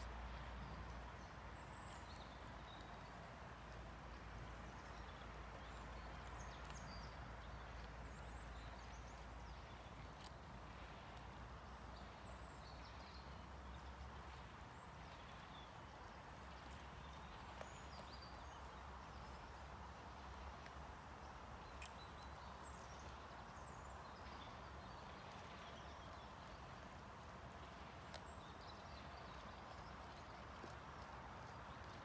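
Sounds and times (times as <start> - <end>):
grass torn and chewed: 0.0 - 12.4, 13.0 - 23.4, 24.2 - 32.0.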